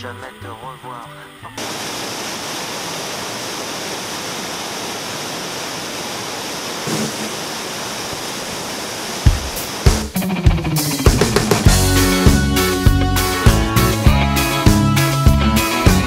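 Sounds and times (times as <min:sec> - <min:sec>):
whitewater rushing over rapids: 0:01.6 - 0:10.1
heavy drum beats: 0:09.2 - 0:16.0.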